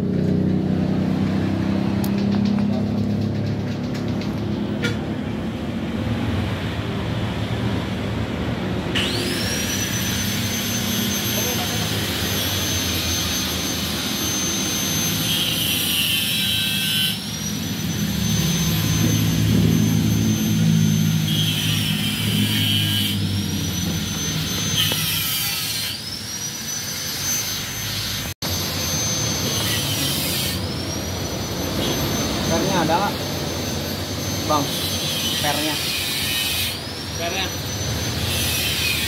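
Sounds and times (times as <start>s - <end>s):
harsh grinding noise: 0.0s - 39.0s
power tool whining: 8.9s - 39.0s.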